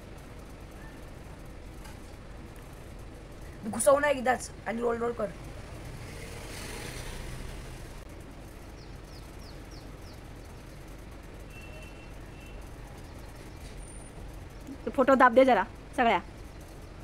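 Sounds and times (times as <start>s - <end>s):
room and street ambience hum: 0.0s - 17.0s
bird chirping: 8.7s - 14.9s.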